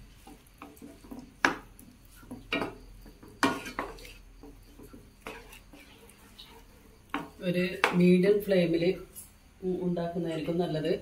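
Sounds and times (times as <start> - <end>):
spatula scraping a pan: 0.0 - 8.0.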